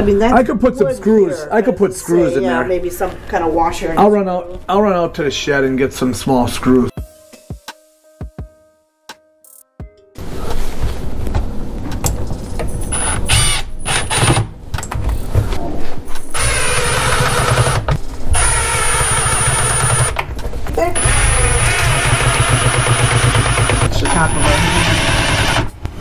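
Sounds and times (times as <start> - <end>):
cordless drill driving screws: 16.3 - 17.8, 18.4 - 20.2, 21.0 - 25.7.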